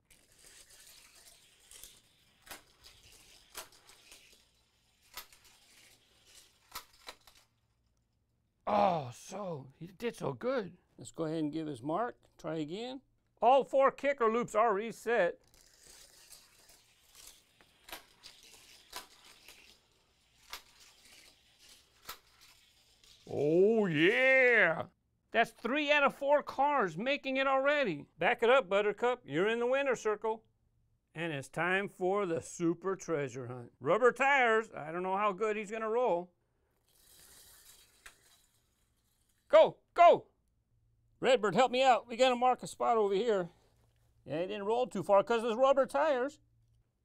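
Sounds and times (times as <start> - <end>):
toy car rolling on plastic track: 0.0 - 7.6, 15.0 - 24.6, 36.8 - 39.5.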